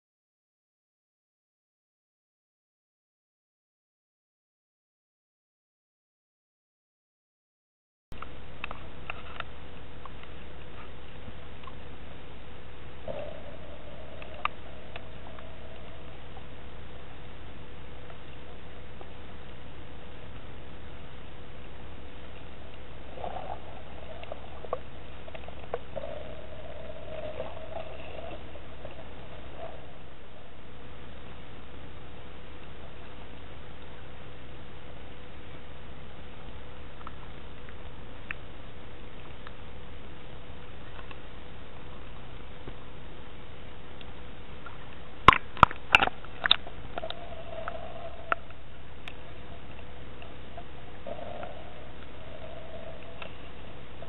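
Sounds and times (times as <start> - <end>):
faint wavering hum: 8.1 - 54.0
steady hiss: 8.2 - 54.0
underwater rush of water: 22.2 - 31.7.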